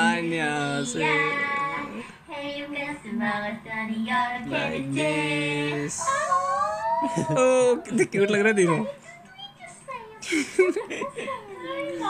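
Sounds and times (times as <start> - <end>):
women singing: 0.0 - 7.4.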